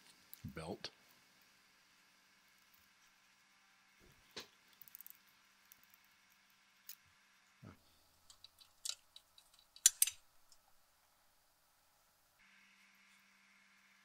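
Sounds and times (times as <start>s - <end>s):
metallic clicks of screwdriver: 8.3s - 10.2s.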